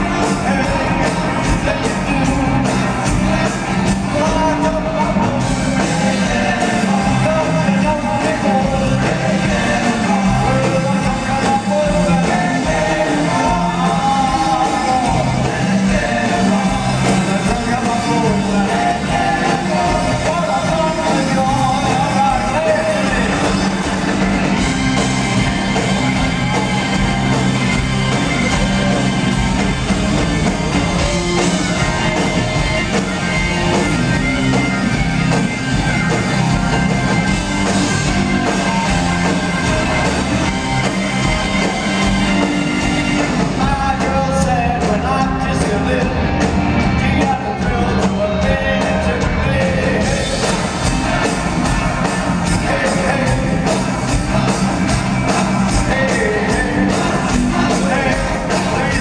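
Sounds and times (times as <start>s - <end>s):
person singing lead vocal: 0.0s - 24.0s, 43.4s - 59.0s
drums beating: 0.0s - 59.0s
rock band playing: 0.0s - 59.0s.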